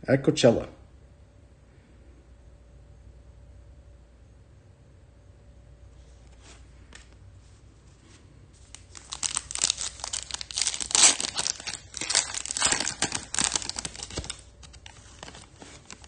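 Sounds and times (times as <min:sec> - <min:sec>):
foil wrapper tearing and crinkling: 0:08.7 - 0:16.0.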